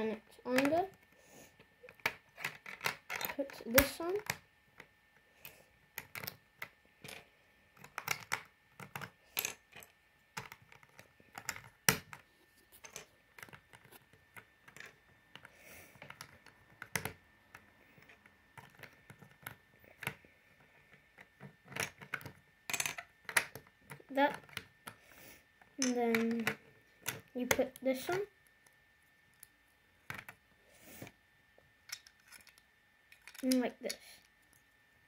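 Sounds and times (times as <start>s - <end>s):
plastic bricks clicking: 6.0s - 7.2s, 7.8s - 12.2s, 12.8s - 20.2s, 21.2s - 25.0s, 25.8s - 27.3s, 31.9s - 34.0s.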